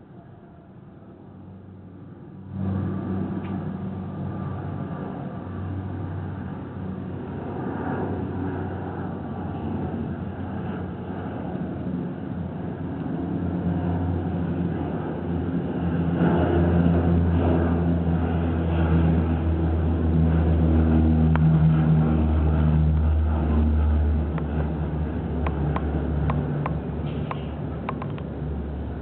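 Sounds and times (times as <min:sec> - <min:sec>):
airliner engine drone: 0:00.0 - 0:29.0
faint short clicks: 0:25.4 - 0:28.3.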